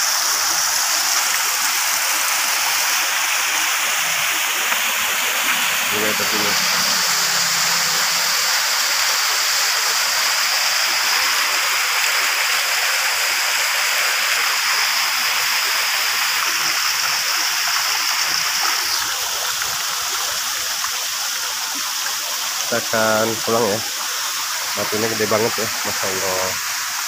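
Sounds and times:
waterfall rushing: 0.0s - 21.6s.

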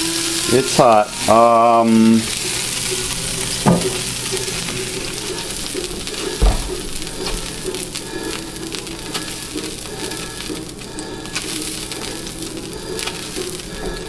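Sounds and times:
water sizzling on hot griddle: 0.0s - 14.0s
knocks: 3.6s - 4.0s, 6.4s - 6.8s.

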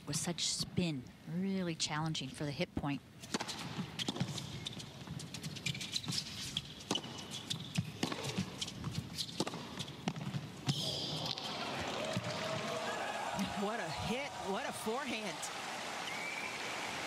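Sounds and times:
racket striking tennis ball: 3.2s - 4.5s, 6.2s - 11.4s
players' footsteps on court: 3.4s - 15.2s
crowd cheering and applauding: 11.5s - 17.0s.

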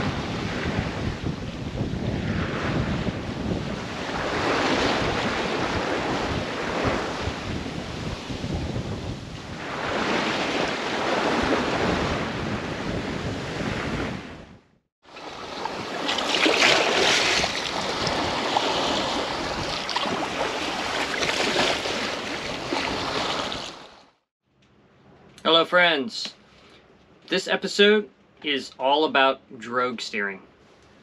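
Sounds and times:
water rushing past hull: 0.0s - 14.3s, 15.0s - 24.2s
wind buffeting microphone: 0.0s - 14.7s, 16.8s - 23.7s
ocean waves: 0.0s - 24.2s.

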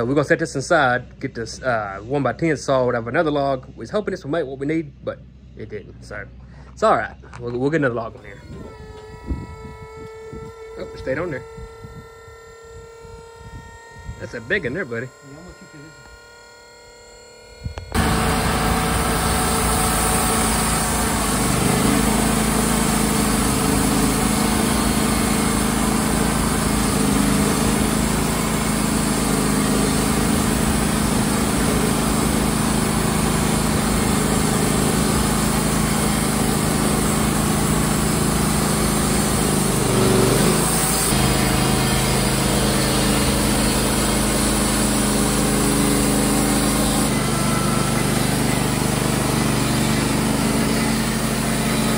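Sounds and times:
sawmill engine running: 0.0s - 51.9s.

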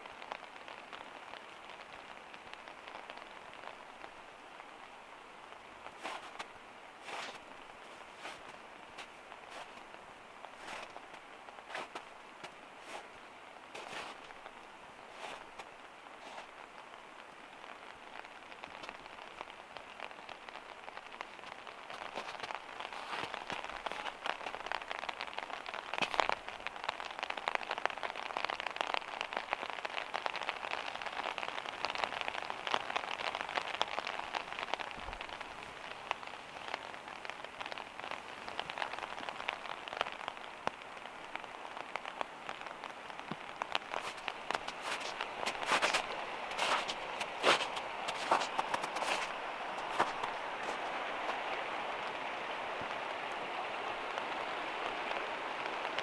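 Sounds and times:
freezing rain pattering on snow: 0.0s - 56.0s.

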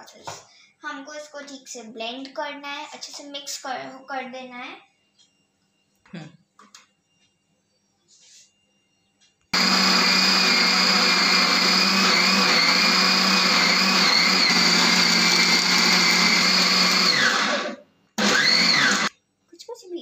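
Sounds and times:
blender whining: 9.6s - 19.1s.

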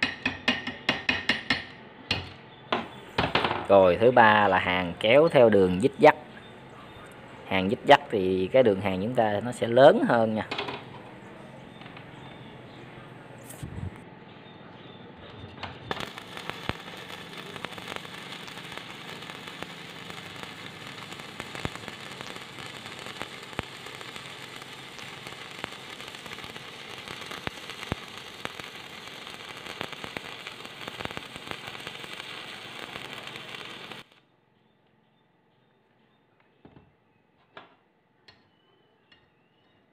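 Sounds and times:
welding arc hissing and popping: 15.9s - 34.2s.

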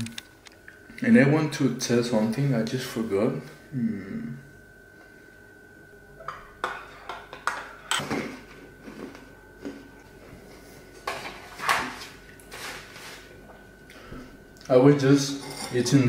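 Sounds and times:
tableware clinking: 15.3s - 16.0s.

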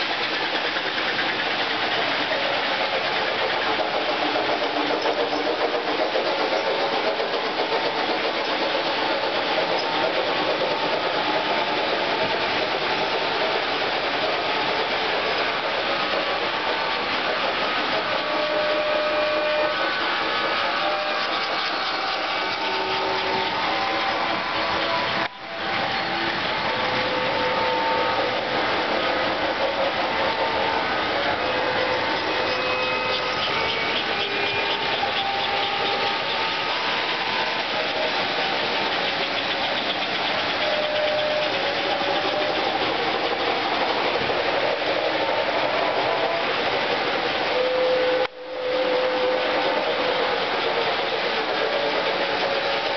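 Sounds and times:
model trains whirring on track: 0.0s - 52.9s.

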